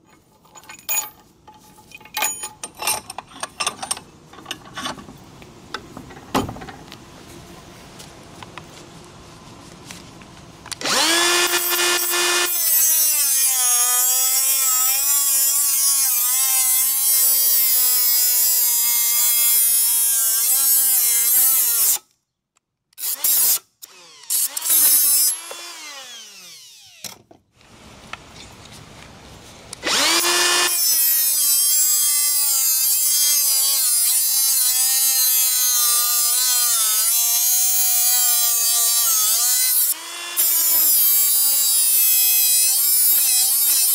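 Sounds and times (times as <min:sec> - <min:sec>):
grinder winding down: 0:10.8 - 0:21.8, 0:23.8 - 0:27.0, 0:29.8 - 0:43.9
grinder disc cutting steel: 0:10.8 - 0:22.0, 0:23.0 - 0:27.0, 0:29.8 - 0:43.9.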